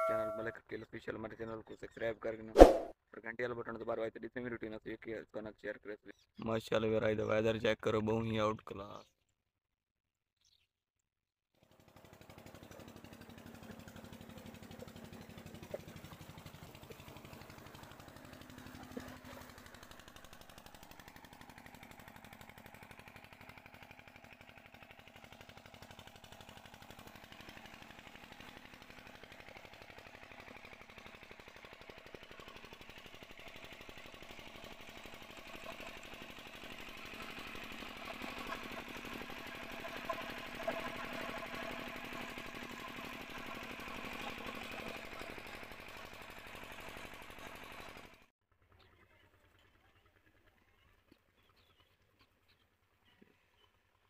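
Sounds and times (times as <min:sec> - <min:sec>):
diesel engine chugging: 0:11.7 - 0:51.9.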